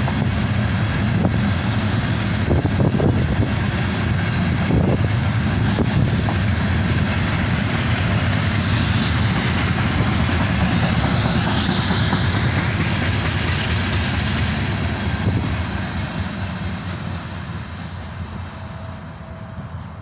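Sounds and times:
freight train wheels on rail: 0.0 - 20.0.

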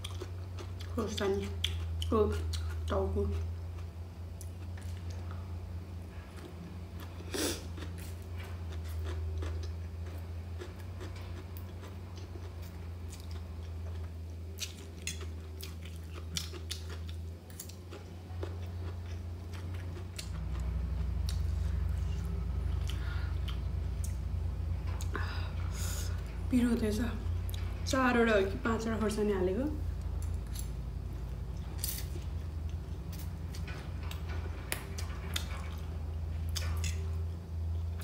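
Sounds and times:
close-up chewing: 0.0 - 5.4, 6.2 - 24.2
steady low hum: 0.0 - 38.0.

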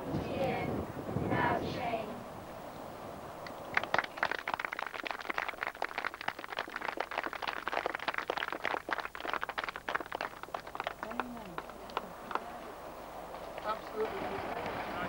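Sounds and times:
crowd clapping: 3.4 - 12.8, 13.6 - 15.0.

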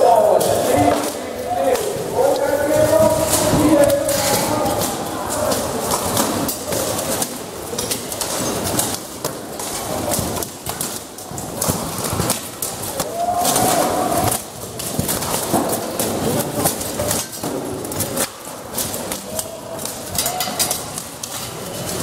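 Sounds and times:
metallic bangs and clanks on armour: 0.0 - 22.0.

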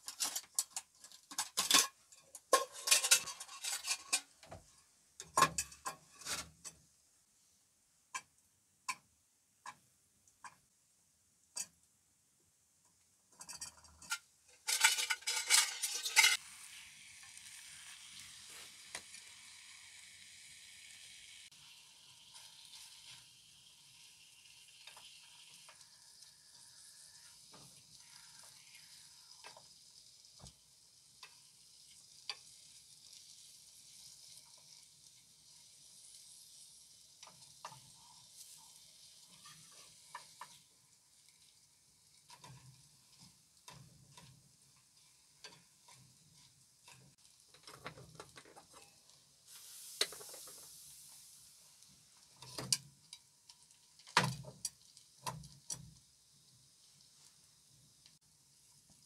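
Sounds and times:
wooden spatula scraping a pan: 0.0 - 4.7, 5.4 - 6.8, 13.4 - 16.4, 31.2 - 51.4
sausage sizzling in a pan: 14.0 - 59.0.

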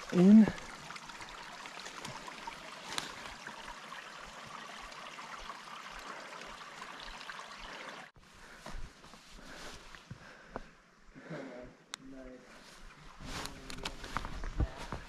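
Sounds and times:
water trickling into a lake: 0.0 - 8.2.

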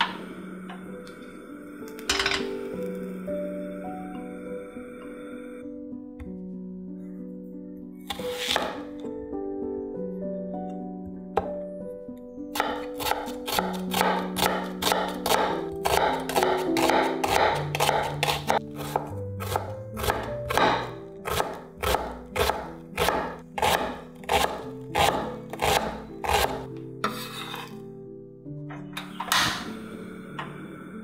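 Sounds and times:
background music: 0.0 - 31.0
knife chopping on wooden board: 12.6 - 27.3.

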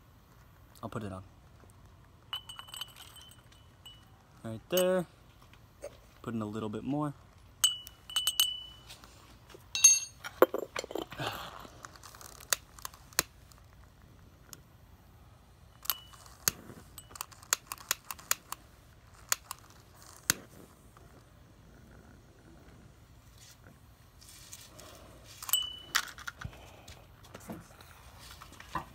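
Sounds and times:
metal spoon clinking on glass: 2.3 - 4.1, 7.6 - 8.9, 9.8 - 11.0, 15.8 - 16.2, 25.5 - 26.1
charcoal crunching: 10.9 - 13.9.

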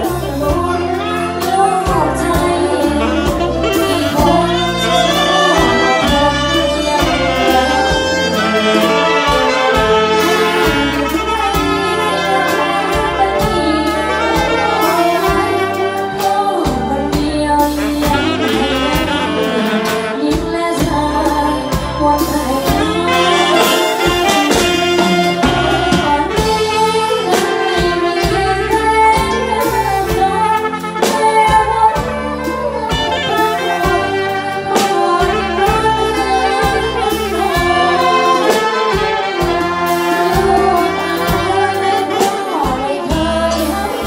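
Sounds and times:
brass band playing lively tune: 0.0 - 44.0.

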